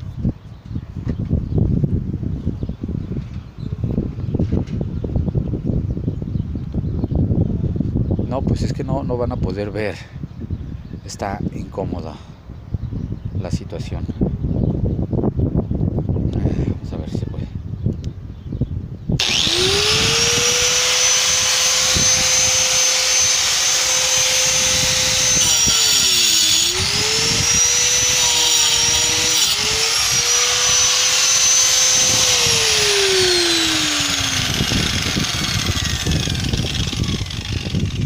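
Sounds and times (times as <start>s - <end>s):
angle grinder whine: 19.2s - 38.0s
grinder cutting into cement: 19.2s - 38.0s.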